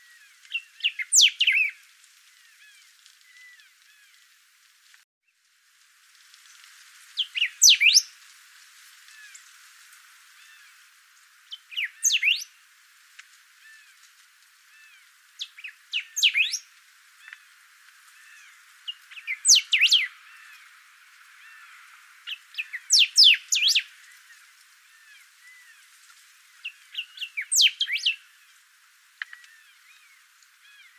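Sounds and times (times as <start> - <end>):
faint chirps of other birds: 0.0 - 4.4, 7.2 - 8.2, 10.3 - 12.6, 13.5 - 30.9
bird singing sweeping notes: 0.5 - 1.8, 7.2 - 8.1, 11.5 - 12.5, 15.4 - 16.6, 18.4 - 20.6, 22.3 - 23.9, 26.6 - 28.2.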